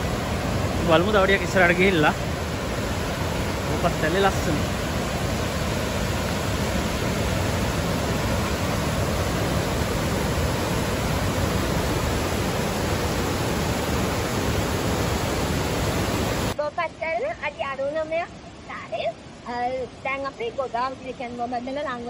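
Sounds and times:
waterfall rushing over rock: 0.0s - 16.6s.

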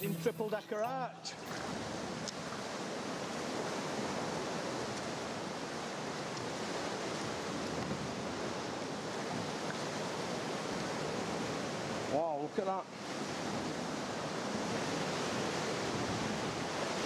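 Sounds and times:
surf washing through rock arch: 0.2s - 17.0s.

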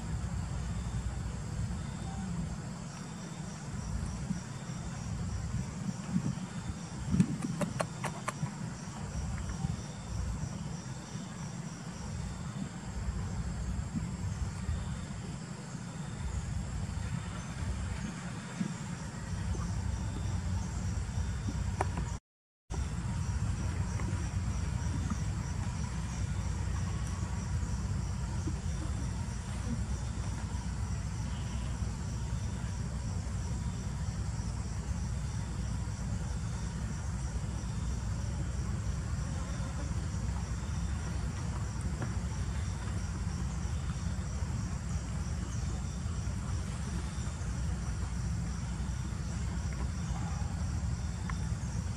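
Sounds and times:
insects trilling: 0.0s - 51.9s
steady low rumble: 16.1s - 51.9s.

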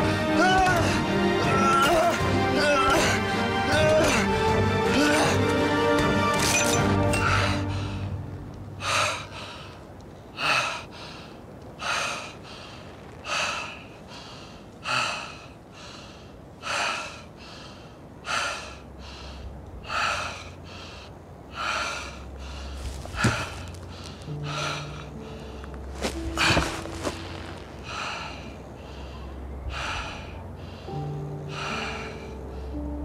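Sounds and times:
person breathing hard: 10.4s - 33.0s.

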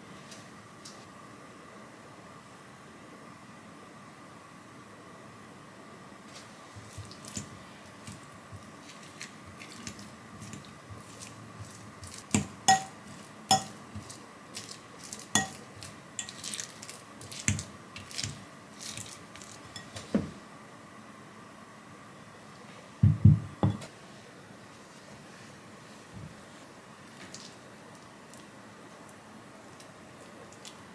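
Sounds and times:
fork mashing sweet potatoes: 6.7s - 20.0s
fork clinking against glass bowl: 12.7s - 13.8s, 15.4s - 15.6s, 16.2s - 16.5s.

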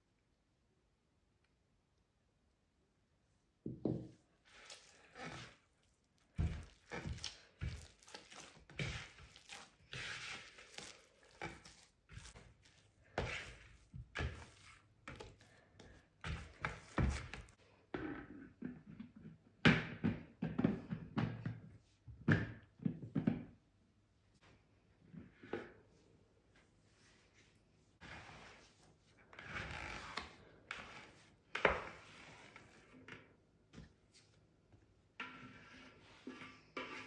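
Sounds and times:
dough squelching and slapping: 4.4s - 17.6s.

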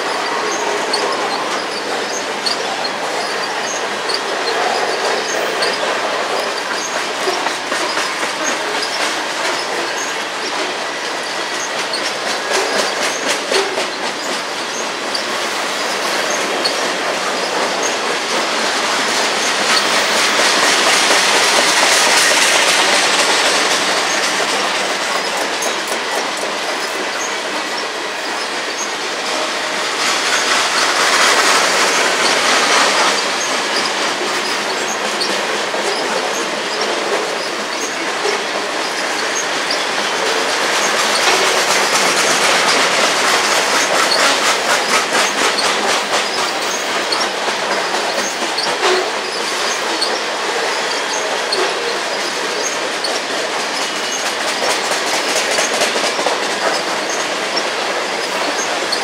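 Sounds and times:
thin squealing tone: 0.0s - 18.2s
freight train wheels rumbling: 0.0s - 59.0s
wheels clicking over rail joints: 0.0s - 59.0s.

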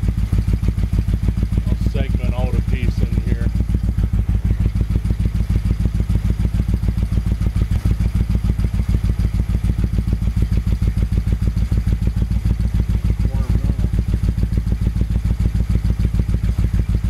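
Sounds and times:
motorcycle engine idling: 0.0s - 17.0s.

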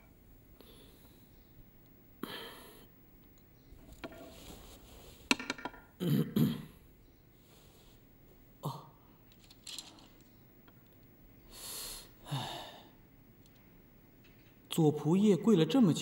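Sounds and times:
man coughing: 6.0s - 6.8s
breathy exhale: 11.5s - 13.0s.

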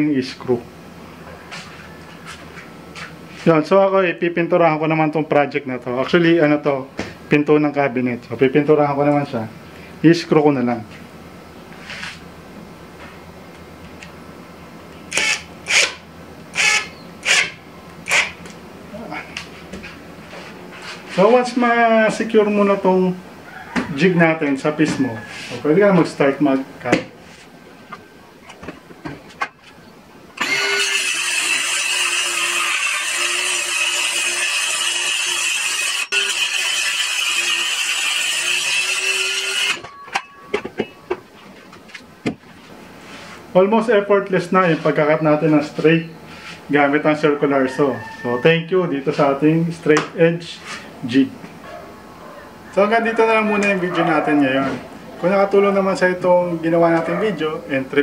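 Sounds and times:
cordless driver driving a screw: 15.1s - 16.0s, 16.6s - 18.4s, 30.4s - 39.8s
circular saw cutting plywood: 30.4s - 39.9s.

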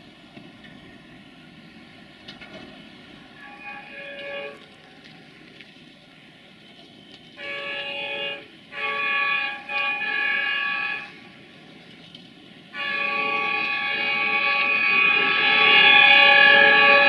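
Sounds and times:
locomotive air horn blasts: 3.3s - 4.8s, 7.4s - 11.5s, 12.6s - 17.0s.

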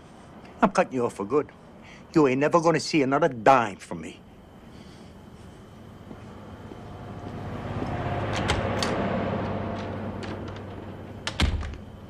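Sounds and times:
motor vehicle passing: 6.0s - 12.0s.

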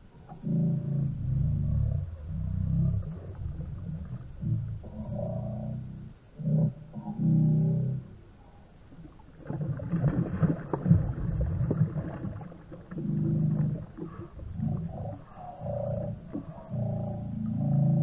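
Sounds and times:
low drawn-out tones: 0.0s - 9.5s, 10.8s - 18.0s
fish splashing at surface: 9.2s - 13.0s.

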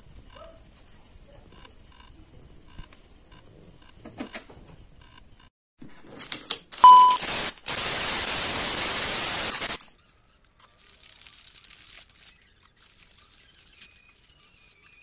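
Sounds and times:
test-tone beep: 6.8s - 7.2s
tv static hiss: 6.8s - 9.9s
sachet crinkling: 10.5s - 14.7s.

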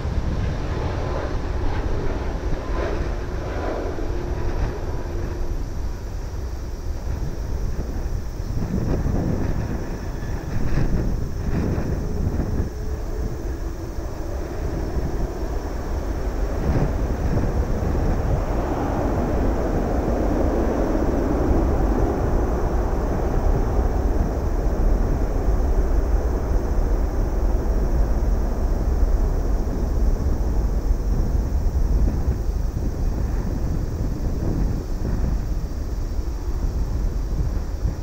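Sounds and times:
distant jet engines rumbling: 0.0s - 38.0s
wind rumble on microphone: 0.0s - 38.0s.

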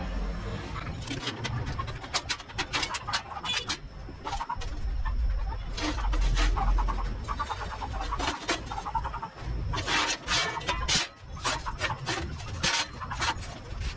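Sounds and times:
metal scraping on steel table: 5.7s - 13.9s.

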